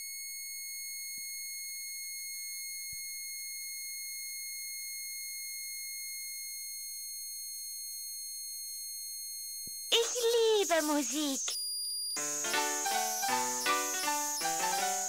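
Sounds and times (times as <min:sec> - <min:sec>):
high-pitched electronic toy tone: 0:09.9 - 0:15.0.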